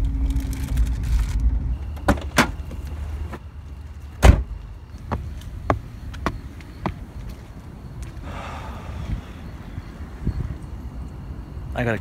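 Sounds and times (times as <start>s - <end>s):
car road rumble: 0.0s - 11.7s
car door slamming: 4.2s - 4.6s.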